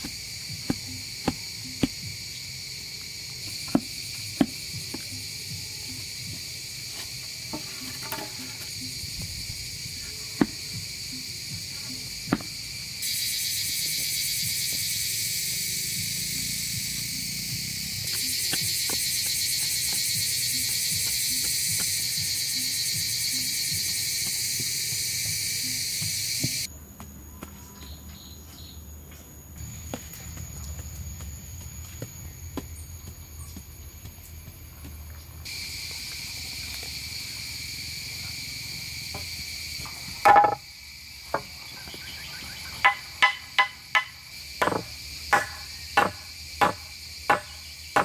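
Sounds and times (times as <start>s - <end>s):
high-pitched insect chorus: 0.0s - 48.0s
sharp knocks: 42.8s - 48.0s.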